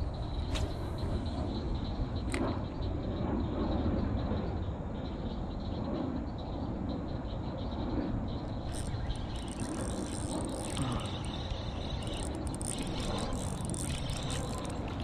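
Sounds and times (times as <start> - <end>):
faint high chirring: 8.6 - 15.0.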